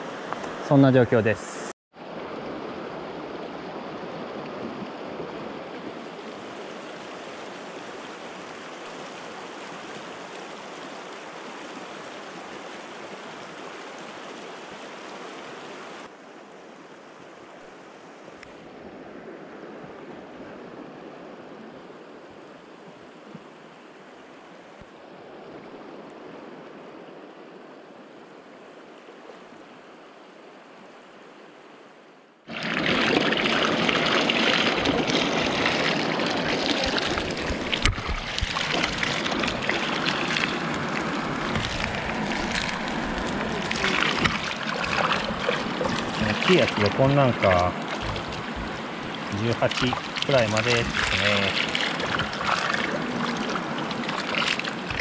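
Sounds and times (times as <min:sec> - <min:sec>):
river flowing over rocks: 0:32.5 - 0:55.0.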